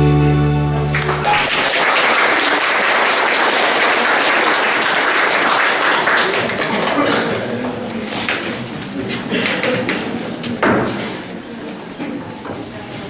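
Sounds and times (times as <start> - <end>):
audience applauding: 0.8 - 8.5.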